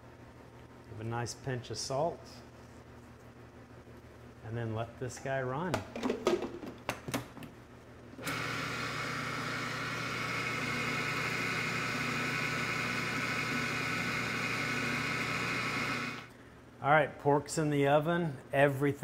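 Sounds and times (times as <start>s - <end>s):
food processor motor running: 8.2s - 16.3s.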